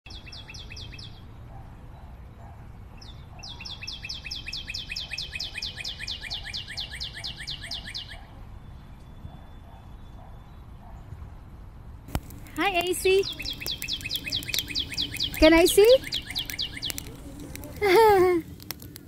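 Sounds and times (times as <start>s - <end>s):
bird chirping descending calls: 12.6s - 17.1s.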